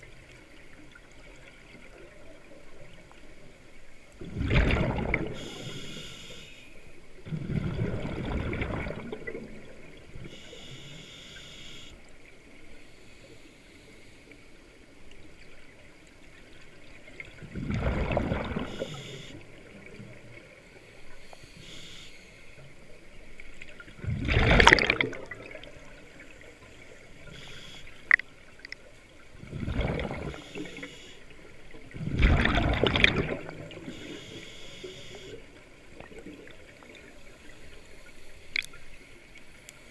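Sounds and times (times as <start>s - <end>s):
exhaled bubbles underwater: 4.2s - 5.8s, 7.2s - 10.4s, 16.7s - 20.8s, 22.8s - 27.4s, 28.1s - 37.4s
regulator hiss: 5.4s - 6.9s, 10.2s - 12.0s, 18.7s - 19.4s, 21.0s - 22.6s, 27.2s - 28.1s, 30.3s - 31.2s, 33.9s - 35.4s.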